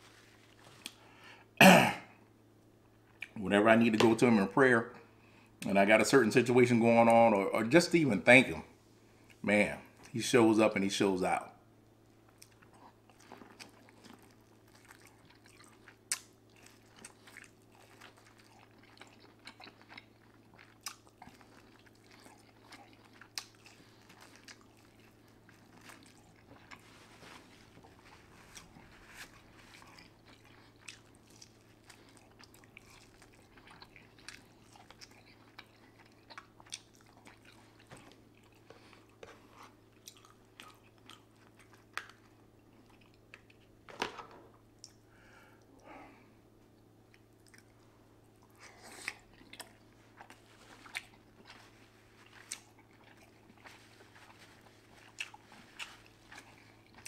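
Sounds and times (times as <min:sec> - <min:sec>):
person chewing seafood: 0:12.2 - 0:43.8, 0:46.7 - 0:57.0.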